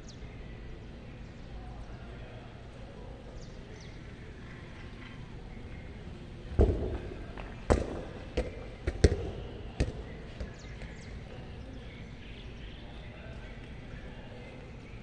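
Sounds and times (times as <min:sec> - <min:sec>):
outdoor background: 0:00.0 - 0:15.0
sharp thumps: 0:06.5 - 0:11.1.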